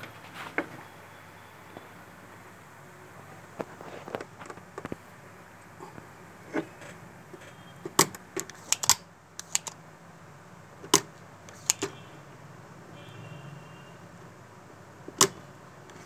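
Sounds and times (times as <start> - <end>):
tools clicking on circuit board: 7.4 - 9.8, 10.9 - 12.0.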